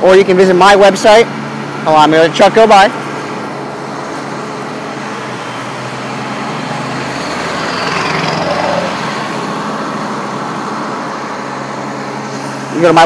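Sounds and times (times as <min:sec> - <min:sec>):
trucks driving past: 0:00.0 - 0:13.0
falling whine: 0:04.0 - 0:10.6.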